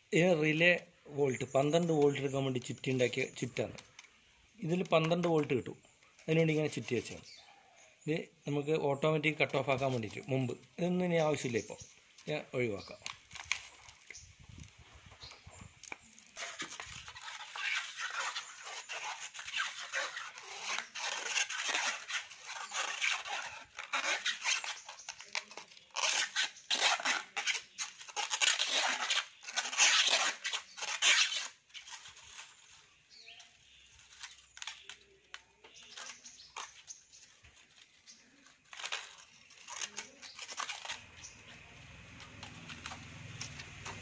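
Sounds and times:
wire scraping off a coil: 9.2 - 32.8, 37.8 - 44.0.

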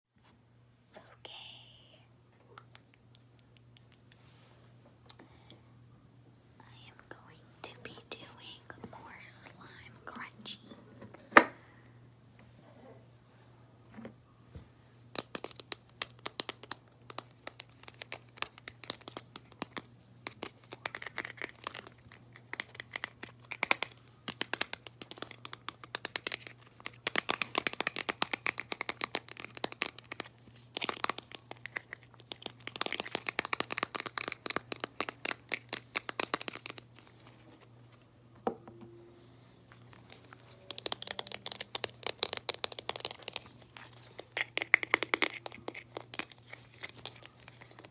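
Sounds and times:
slime crunching and crackling: 15.2 - 37.0, 39.9 - 47.9.

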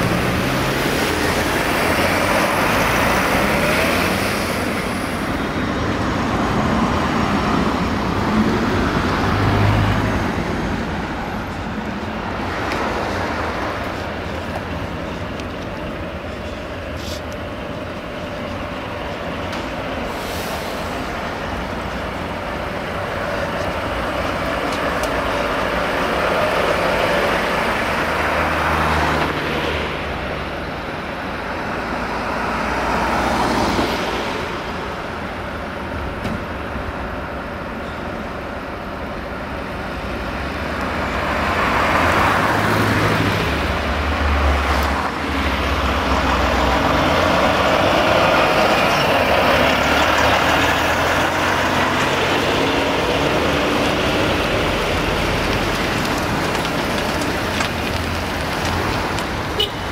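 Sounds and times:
heavy truck engine running: 0.0 - 28.6
street traffic: 0.0 - 59.9.

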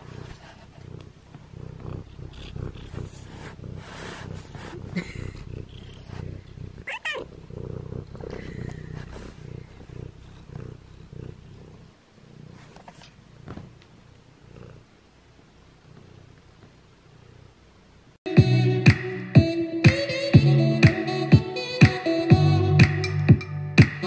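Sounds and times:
cat purring: 0.0 - 18.2
cat chirping call: 6.8 - 7.3.

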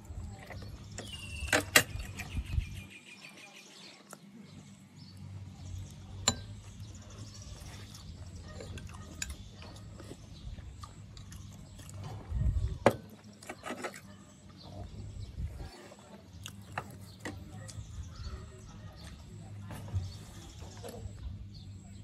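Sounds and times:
chewing and mouth sounds: 7.5 - 12.7, 15.7 - 17.9.

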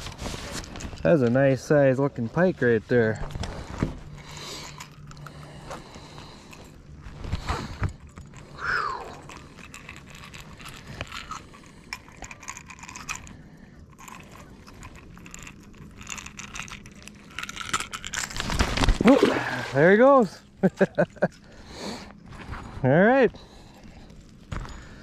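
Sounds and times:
fishing pliers clicking and rattling: 3.4 - 6.8, 7.6 - 18.8.

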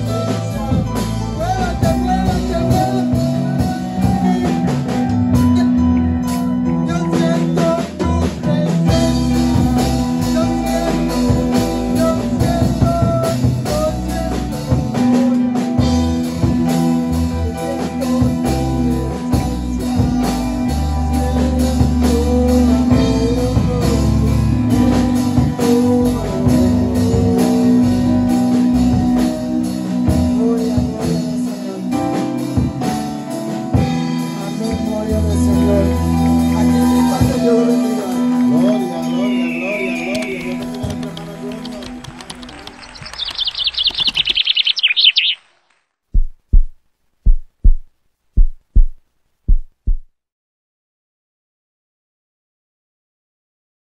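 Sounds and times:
man singing into a microphone: 0.0 - 41.8
guitar accompaniment: 0.0 - 44.2
drum kit: 0.0 - 44.4, 46.2 - 50.0.

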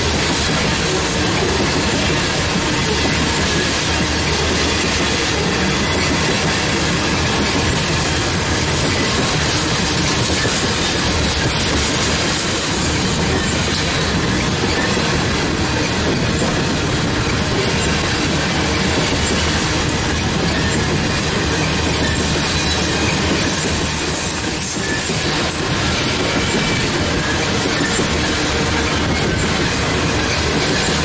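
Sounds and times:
steel wheels running on rails: 0.0 - 31.0.

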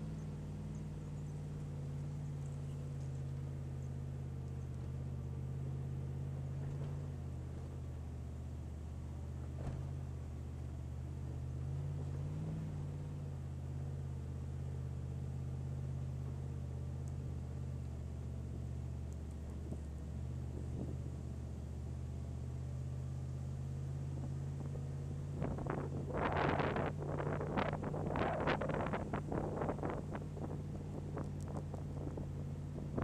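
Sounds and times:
vehicle engine climbing: 0.0 - 33.0
wind buffeting microphone: 25.4 - 33.0.

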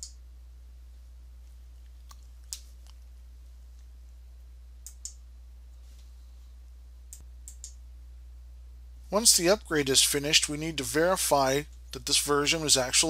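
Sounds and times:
steady low hum: 0.0 - 13.0
computer mouse and key clicks: 4.8 - 5.2, 7.1 - 7.8.

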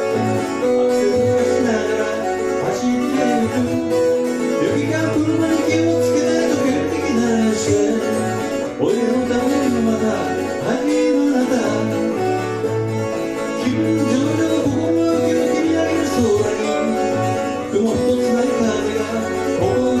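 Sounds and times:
acoustic guitar strumming: 0.0 - 20.0
man singing: 0.0 - 20.0.

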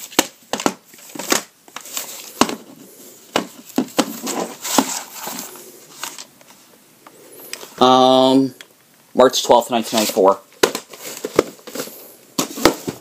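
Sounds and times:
cardboard sleeve rustling: 0.0 - 6.3, 9.8 - 13.0.

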